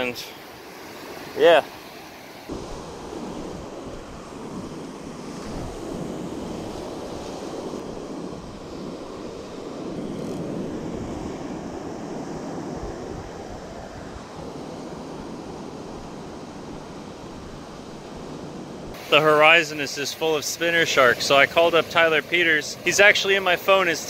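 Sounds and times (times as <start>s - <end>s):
ocean surf breaking on beach: 0.0s - 24.0s
wind on microphone: 2.5s - 19.1s.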